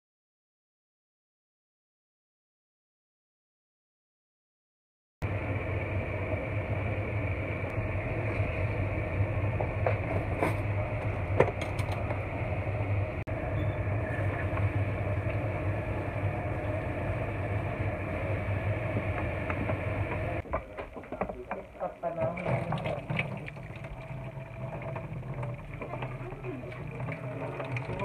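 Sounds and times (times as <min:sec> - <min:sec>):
stove hum and rushing: 0:05.2 - 0:28.0
pot of noodles boiling: 0:13.8 - 0:28.0.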